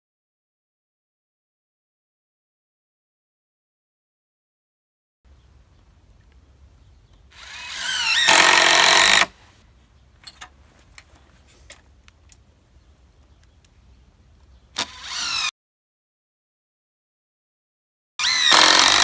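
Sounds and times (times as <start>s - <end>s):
cordless drill whining: 7.3s - 9.3s, 14.8s - 15.5s, 18.2s - 19.0s.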